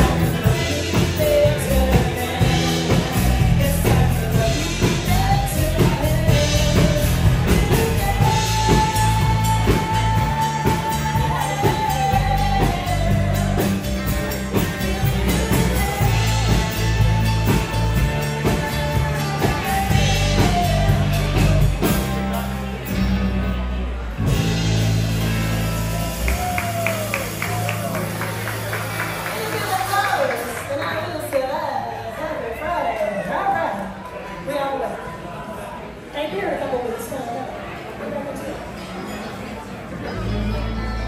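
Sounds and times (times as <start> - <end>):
person singing long notes: 0.0 - 22.0
rock band music: 0.0 - 31.3.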